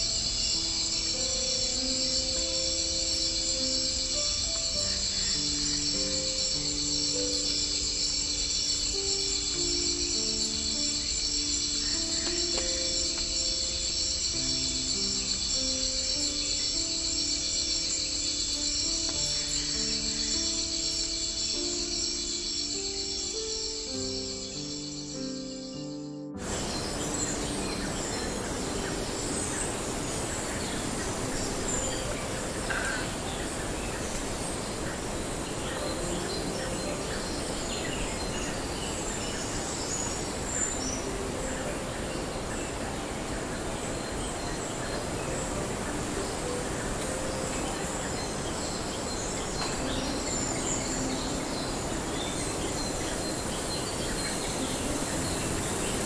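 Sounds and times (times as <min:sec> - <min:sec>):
bird chirps and calls: 0:00.0 - 0:56.0
steady hiss: 0:00.0 - 0:56.0.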